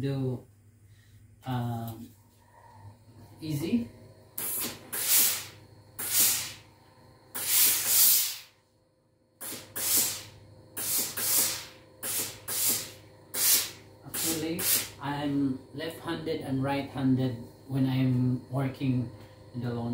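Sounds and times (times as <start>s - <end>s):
steam iron hissing bursts: 4.4s - 6.6s, 7.4s - 8.6s, 9.4s - 15.0s.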